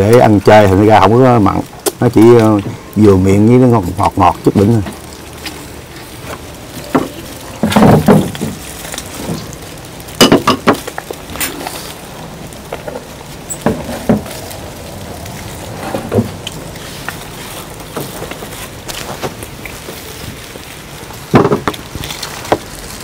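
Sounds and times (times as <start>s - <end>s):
dishes clicking and knocking: 10.2s - 10.9s.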